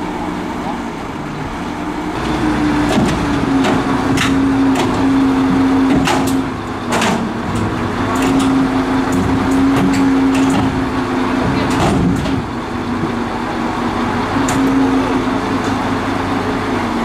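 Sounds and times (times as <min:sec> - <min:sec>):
crane engine droning: 0:00.0 - 0:17.0
metal knocks and clanks: 0:02.2 - 0:13.2.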